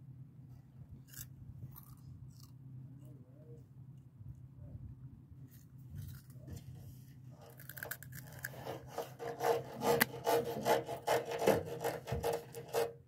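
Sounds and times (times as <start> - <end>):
rubbing and scratching on microphone: 8.2 - 13.0.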